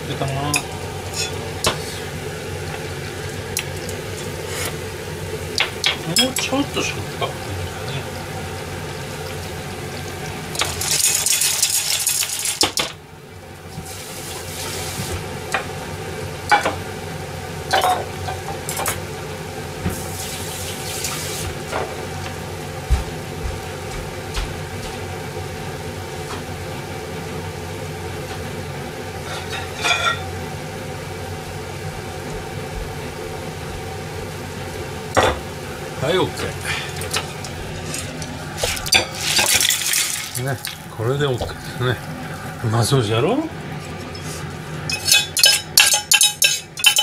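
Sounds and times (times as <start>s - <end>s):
loud sizzling hiss: 0.0s - 13.0s, 13.6s - 22.9s, 33.0s - 43.5s.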